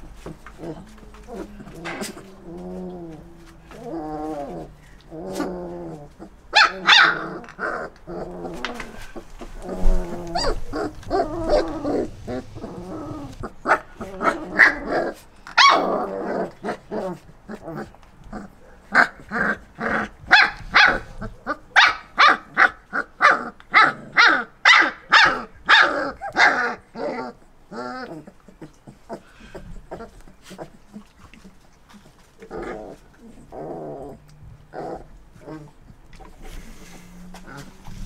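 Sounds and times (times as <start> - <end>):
puppies growling and whining: 0.0 - 38.0
puppies yipping and barking: 6.1 - 17.9.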